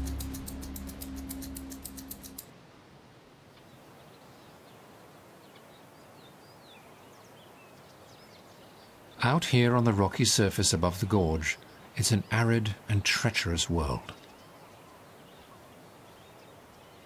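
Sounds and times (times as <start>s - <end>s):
score music with low held notes: 0.0s - 2.2s
fast ticking percussion: 0.0s - 2.5s.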